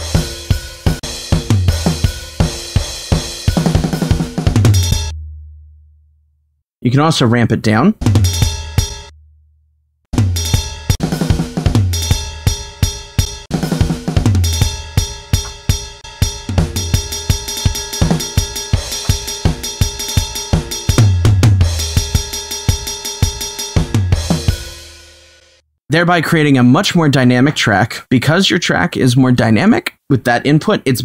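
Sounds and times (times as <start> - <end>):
fast kick drum runs: 0.0 - 5.1, 10.2 - 24.7
programmed drum kit track: 0.0 - 5.5, 8.0 - 9.2, 10.1 - 25.6.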